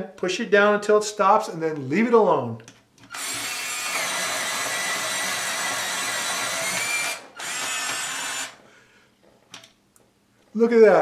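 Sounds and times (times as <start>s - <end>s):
electric pencil sharpener grinding: 3.1s - 8.6s.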